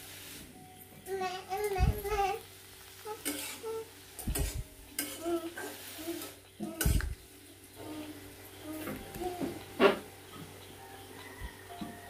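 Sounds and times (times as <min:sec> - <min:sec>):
light sizzle: 0:00.0 - 0:12.0
metal spatula scraping a pan: 0:03.0 - 0:07.1.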